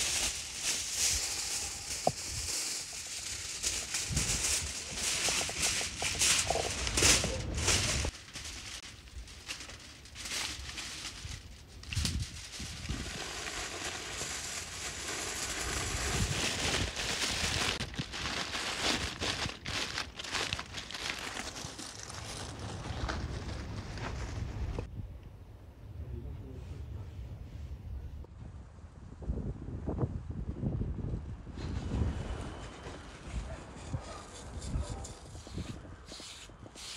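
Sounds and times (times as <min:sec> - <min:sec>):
loud rustling: 0:00.0 - 0:11.4
aluminium foil crinkling: 0:00.0 - 0:24.3.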